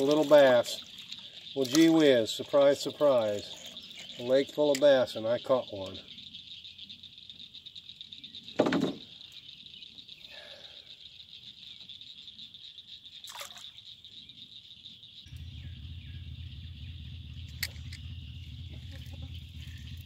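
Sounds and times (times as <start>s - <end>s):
splash in lake water: 0.0s - 3.5s, 13.2s - 13.8s
high-pitched background drone: 15.3s - 20.0s
low rumble: 15.3s - 20.0s.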